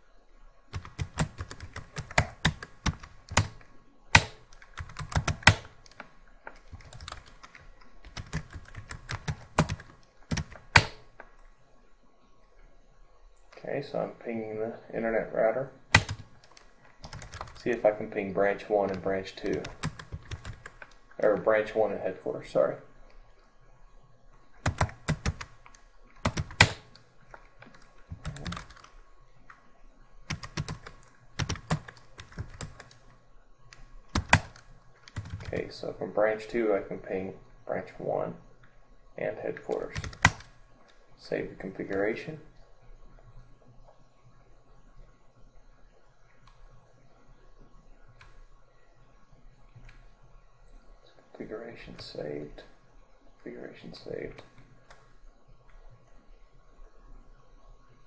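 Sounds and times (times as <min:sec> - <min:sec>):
typing on computer keyboard: 0:00.7 - 0:11.0, 0:15.9 - 0:17.8, 0:18.8 - 0:21.4, 0:24.6 - 0:27.0, 0:27.6 - 0:28.9, 0:30.3 - 0:33.0, 0:33.7 - 0:35.6, 0:39.6 - 0:40.5
keyboard key clicks: 0:00.8 - 0:06.0, 0:08.1 - 0:11.0.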